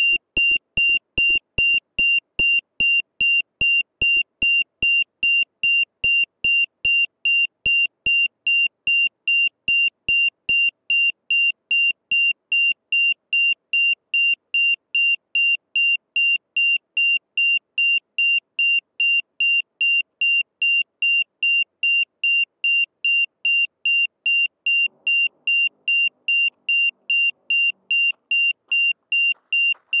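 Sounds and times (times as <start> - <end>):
buzzer beeping: 0.0 - 4.7, 21.2 - 30.0.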